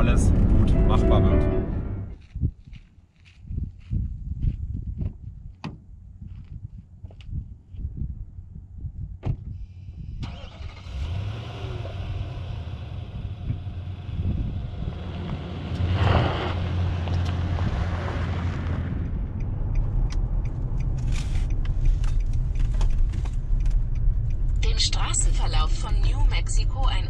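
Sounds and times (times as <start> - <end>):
road and wind noise inside car: 3.4 - 27.0
car engine driving off on dirt: 10.2 - 24.8.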